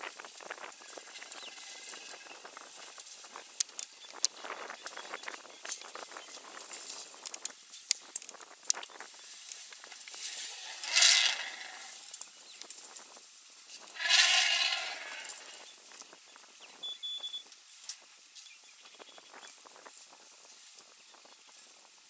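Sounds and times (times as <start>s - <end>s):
rustling and ticking in grass: 0.0s - 22.0s
elephant trumpeting blasts: 10.4s - 12.0s, 13.9s - 15.6s.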